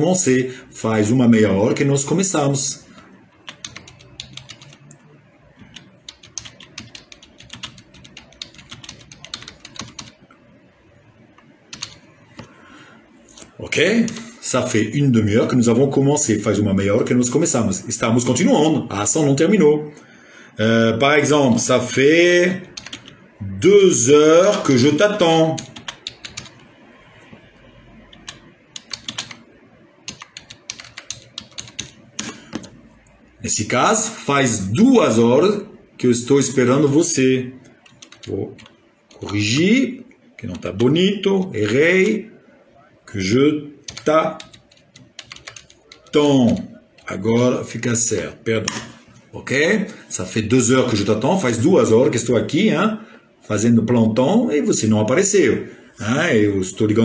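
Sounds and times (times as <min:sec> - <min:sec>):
typing on computer keyboard: 0:03.3 - 0:05.0, 0:05.6 - 0:10.2, 0:11.7 - 0:12.5, 0:22.7 - 0:23.2, 0:25.6 - 0:26.6, 0:28.1 - 0:29.4, 0:30.0 - 0:32.8, 0:37.7 - 0:39.2, 0:43.9 - 0:47.1.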